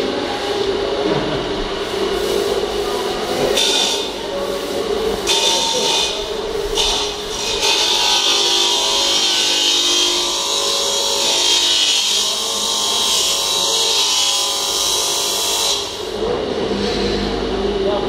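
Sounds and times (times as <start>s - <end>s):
power tool rasping steel pipe: 5.2s - 16.1s.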